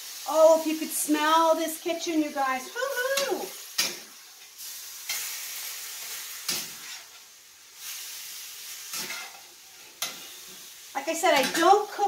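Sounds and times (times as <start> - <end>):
chicken sizzling in a frying pan: 0.0 - 12.0
spatula scraping a pan: 3.2 - 10.7.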